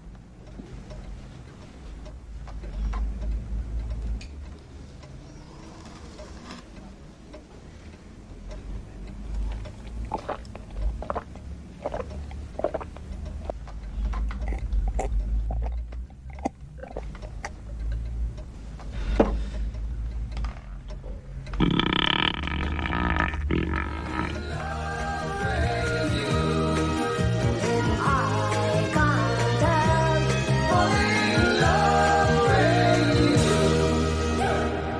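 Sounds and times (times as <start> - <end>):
man gulping a drink: 9.7 - 13.6, 14.2 - 17.6, 21.6 - 24.5
music: 24.3 - 34.9.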